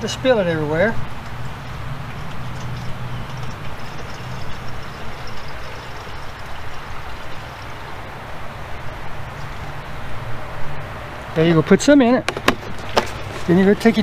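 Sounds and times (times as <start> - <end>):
liquid pouring from jug: 2.1 - 8.0.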